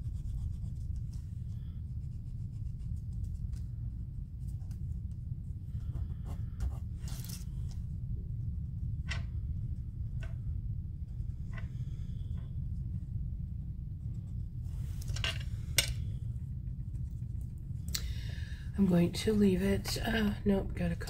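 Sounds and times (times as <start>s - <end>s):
paper scratching and rubbing: 0.0s - 5.1s
steady low hum: 0.0s - 21.0s.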